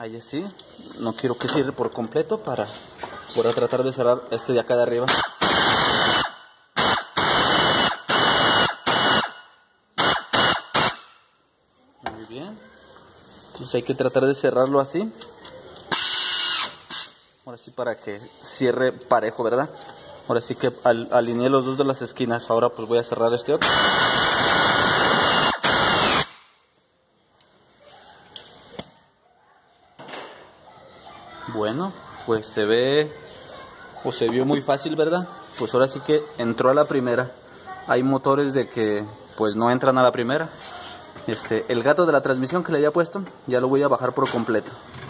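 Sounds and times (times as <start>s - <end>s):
power wrench whirring: 15.9s - 17.2s, 23.6s - 26.4s
pneumatic ratchet with air hiss: 15.9s - 17.3s.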